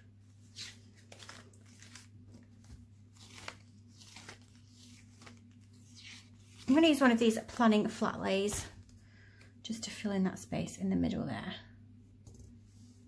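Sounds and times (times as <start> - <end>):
low steady hum: 0.0 - 13.0
book pages turning: 0.3 - 7.6.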